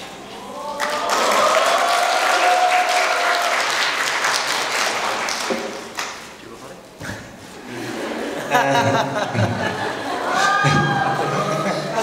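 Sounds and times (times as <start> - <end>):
crowd cheering: 0.3 - 6.0, 7.9 - 12.0
audience applauding: 0.6 - 6.3.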